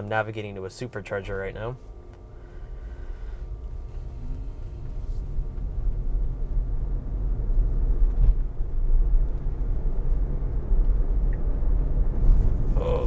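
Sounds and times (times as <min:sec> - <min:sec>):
faint steady buzz: 0:00.0 - 0:13.0
road and tyre rumble in car: 0:01.8 - 0:13.0.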